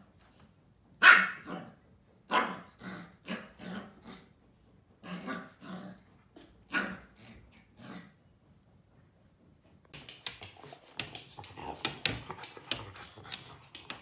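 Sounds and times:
puppy barking: 1.0 - 1.7.

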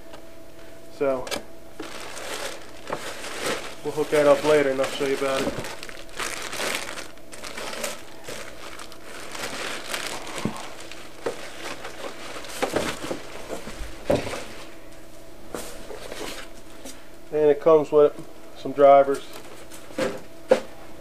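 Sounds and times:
plastic bag crinkling: 1.8 - 14.6.

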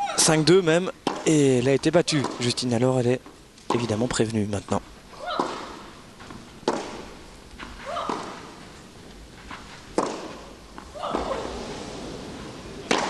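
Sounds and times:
tennis balls struck by rackets: 1.0 - 1.3, 2.1 - 2.6, 3.2 - 4.2, 5.2 - 8.7, 9.5 - 11.6.

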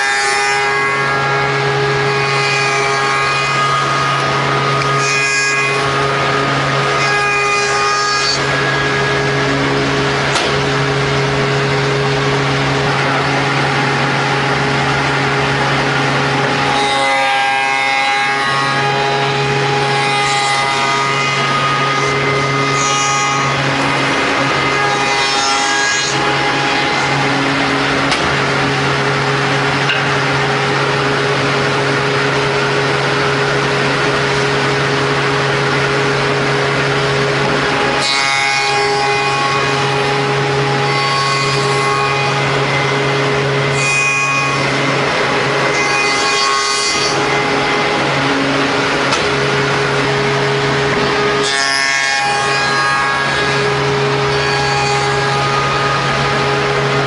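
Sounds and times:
cutter scraping wood: 0.0 - 31.1
machine motor hum: 0.0 - 57.0.

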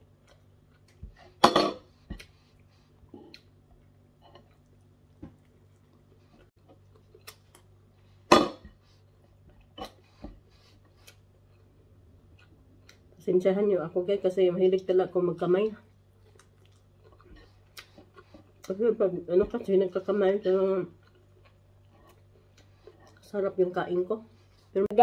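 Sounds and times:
faint low hum: 0.0 - 25.0.

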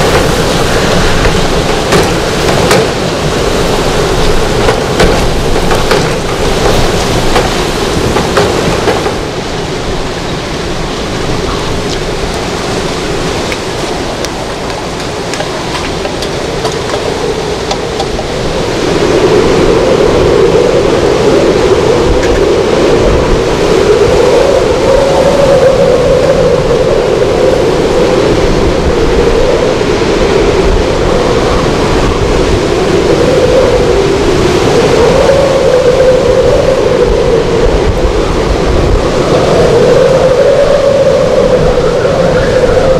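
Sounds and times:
sharp knocks: 0.0 - 3.1, 4.6 - 9.2
roaring wind and rain: 0.0 - 42.9.

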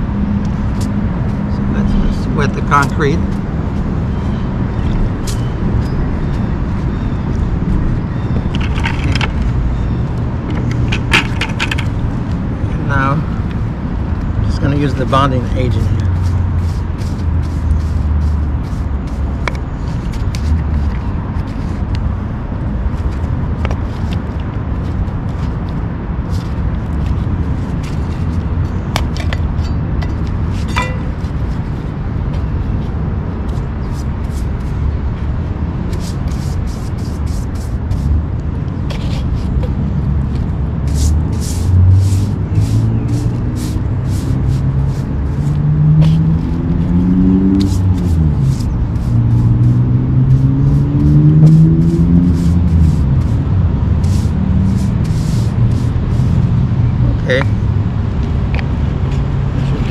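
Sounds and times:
low outdoor rumble: 0.0 - 59.9
vehicle engine humming: 0.0 - 59.9
brush scratching on concrete: 0.5 - 6.9, 14.5 - 22.2, 22.9 - 38.2, 38.8 - 56.6.

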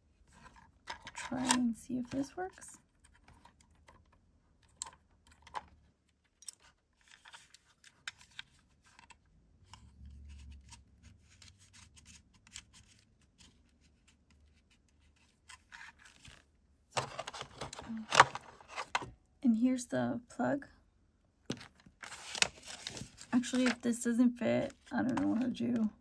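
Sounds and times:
plastic clicks and scratches: 0.4 - 10.8.

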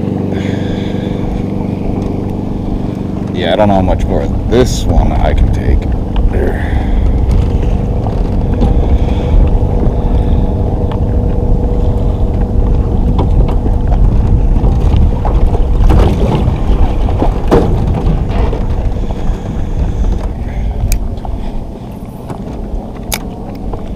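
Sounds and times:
steady hum: 0.0 - 23.9
wind buffeting microphone: 0.0 - 23.9
sharp knocks: 14.6 - 20.2.

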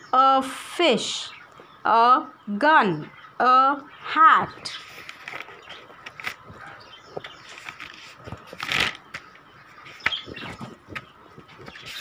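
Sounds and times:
notebook pages rustling: 4.7 - 12.0.

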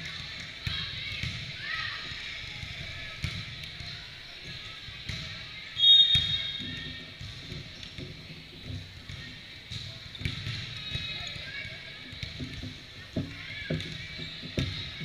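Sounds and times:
chatter of people: 0.0 - 15.0
referee's whistle blast: 5.8 - 6.7.

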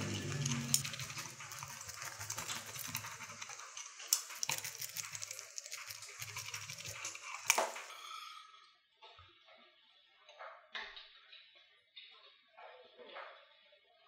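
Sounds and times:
pizza cutter crunching crust: 0.0 - 7.9.

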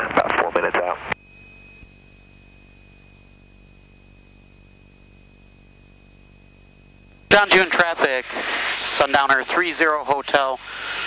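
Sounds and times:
thin high whine: 0.0 - 11.0
intercom hiss: 7.3 - 11.0.

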